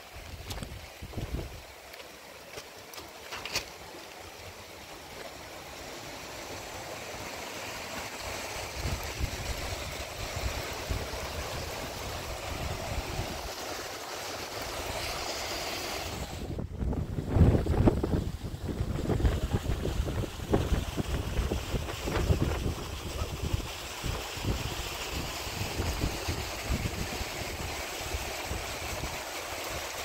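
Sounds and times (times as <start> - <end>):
wind gusting on microphone: 16.0 - 29.2.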